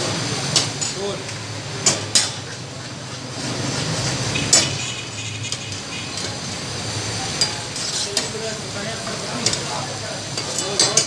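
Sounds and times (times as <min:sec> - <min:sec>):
ladle clinking and scraping in wok: 0:00.4 - 0:11.0.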